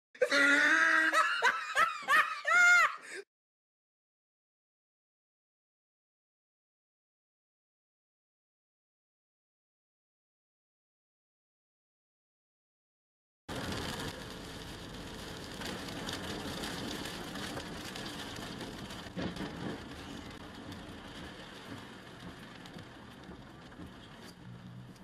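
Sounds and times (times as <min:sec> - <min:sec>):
rain on a car: 0:13.5 - 0:25.0
tyres hissing on wet road: 0:13.5 - 0:25.0.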